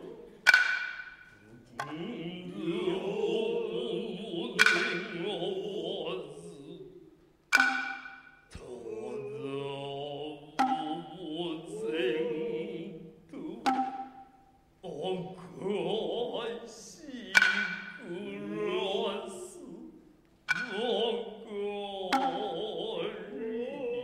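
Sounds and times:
long wavering vocal calls: 0:00.0 - 0:24.0
hand drum strikes: 0:04.5 - 0:05.2, 0:07.5 - 0:08.3, 0:10.6 - 0:11.1, 0:13.6 - 0:14.3, 0:17.4 - 0:18.0.

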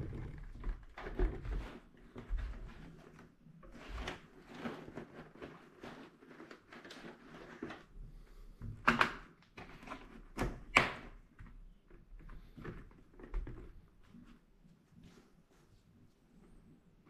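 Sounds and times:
fabric and plastic rustling: 0:00.0 - 0:08.0.

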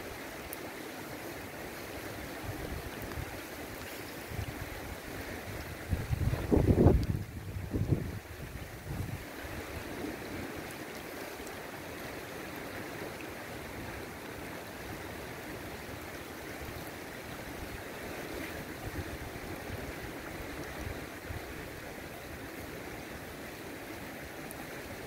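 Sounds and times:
river water flowing over gravel: 0:00.0 - 0:25.0.

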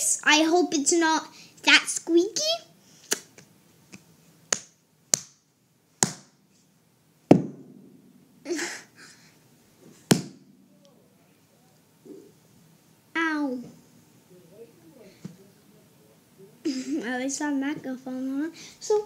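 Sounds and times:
heavy thump: 0:07.3 - 0:08.4, 0:10.0 - 0:10.8.

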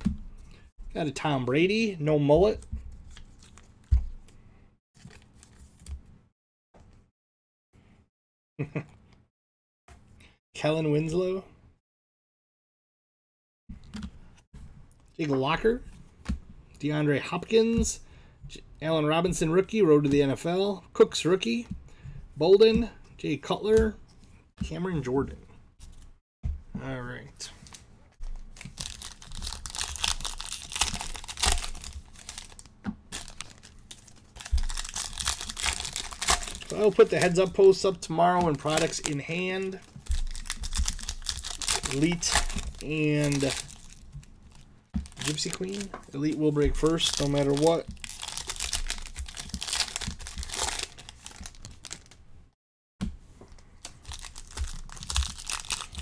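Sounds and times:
cards being handled: 0:02.6 - 0:04.4, 0:27.5 - 0:52.2
foil wrapper rustling: 0:28.6 - 0:52.2, 0:53.8 - 0:56.0.

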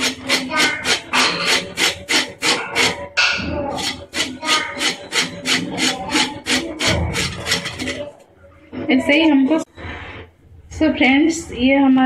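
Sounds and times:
carrot rasping on metal grater: 0:00.0 - 0:08.2.

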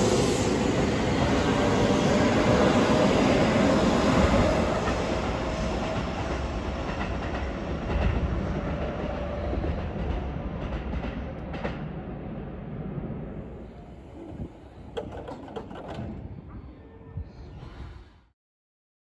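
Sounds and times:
electric train running past: 0:00.0 - 0:16.9
faint train: 0:00.0 - 0:18.3
wheels clicking over rail joints: 0:13.6 - 0:16.4.

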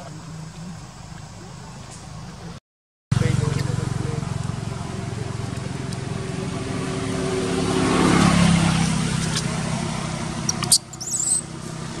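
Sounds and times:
vehicle engine passing by: 0:00.7 - 0:12.0
short high chirp: 0:10.7 - 0:11.4.

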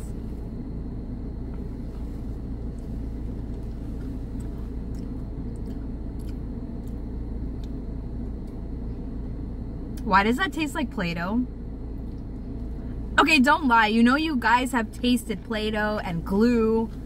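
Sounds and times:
cookie being chewed: 0:03.5 - 0:07.8
car cabin rumble: 0:12.3 - 0:17.0.

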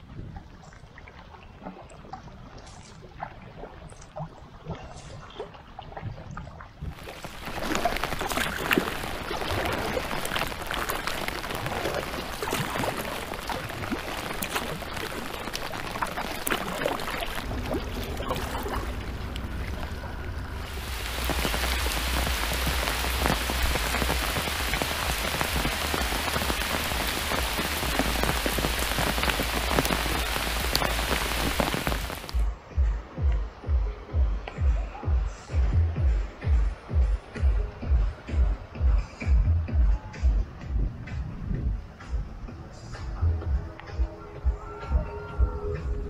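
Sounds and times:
low rumble: 0:06.9 - 0:46.0
rain hissing: 0:07.0 - 0:32.5.

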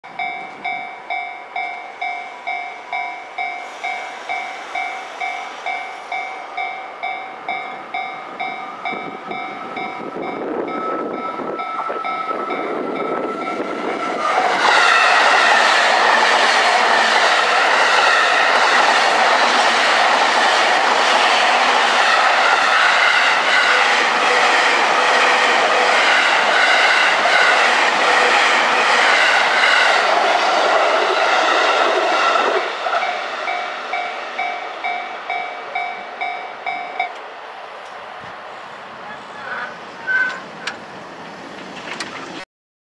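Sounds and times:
level crossing warning bell: 0:00.1 - 0:13.8, 0:33.0 - 0:37.2
electric train passing: 0:00.1 - 0:42.4.

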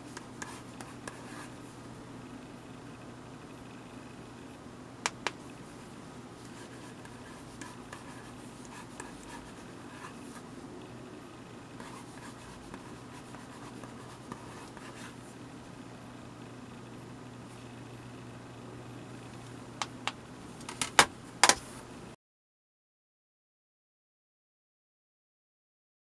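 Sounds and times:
stylus scratching on screen: 0:05.8 - 0:10.5, 0:11.8 - 0:15.2.

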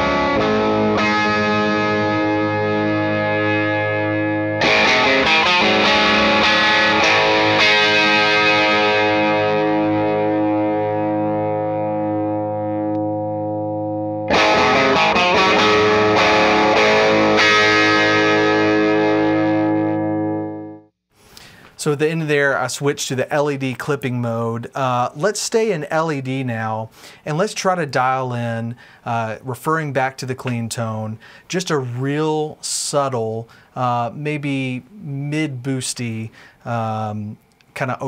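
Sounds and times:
overdriven electric guitar chords: 0:00.0 - 0:21.5.

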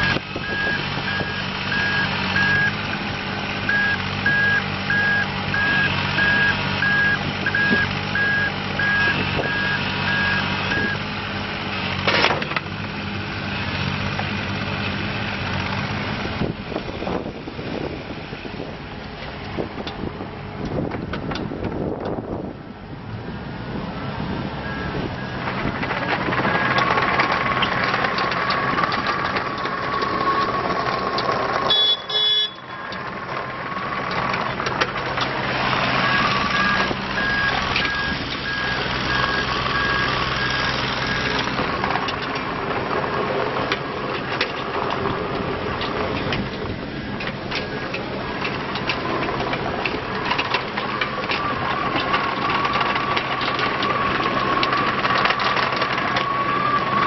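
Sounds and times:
diesel engine under load: 0:00.0 - 0:57.0
travel alarm beeping: 0:00.4 - 0:02.8, 0:03.7 - 0:11.0, 0:31.7 - 0:33.0.

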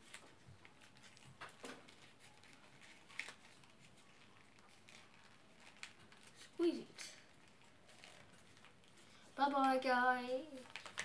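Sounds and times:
paper crinkling: 0:00.0 - 0:11.0.

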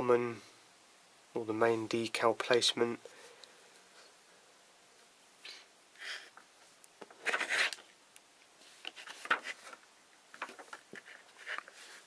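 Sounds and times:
paper pages rustling: 0:07.0 - 0:07.8, 0:08.6 - 0:12.0.

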